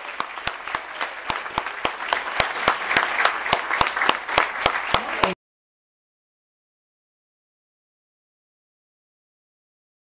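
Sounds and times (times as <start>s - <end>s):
audience applauding: 0.0s - 5.4s
close hands clapping: 0.0s - 5.4s.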